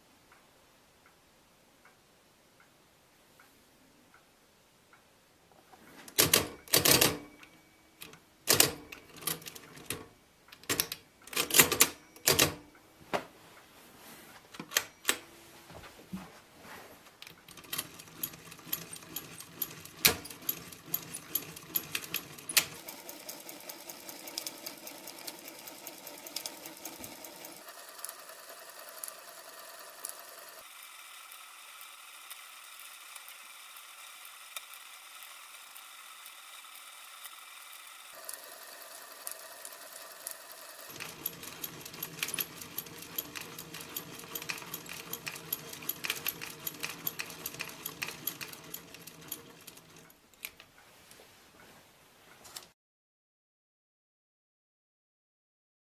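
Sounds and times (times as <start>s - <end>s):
calculator crank clattering whir: 6.1s - 7.2s, 17.3s - 50.2s
mechanical calculator keys clacking: 6.1s - 7.4s, 8.0s - 12.6s, 17.2s - 30.6s, 38.2s - 50.6s.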